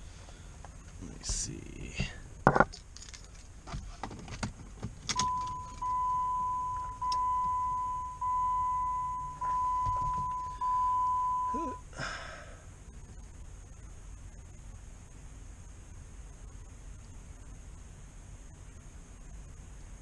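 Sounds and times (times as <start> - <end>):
dashboard warning chime: 5.2 - 11.8.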